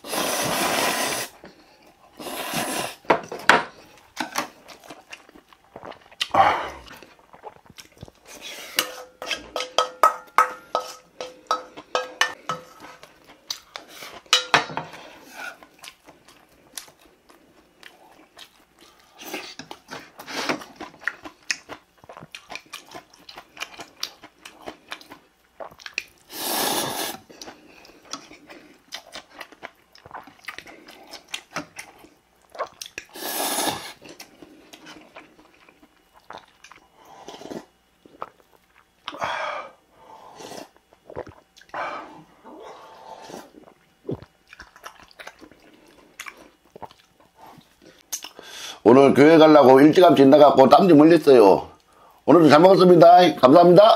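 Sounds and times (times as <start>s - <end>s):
slurping noodles: 0.0s - 1.4s, 2.2s - 3.0s, 26.3s - 27.3s, 33.0s - 35.0s, 40.2s - 44.3s
chewing: 3.9s - 8.5s, 15.2s - 26.3s, 27.2s - 33.2s, 33.9s - 39.2s, 40.5s - 48.4s
spoon clinking against metal bowl: 8.8s - 12.7s, 14.4s - 14.7s.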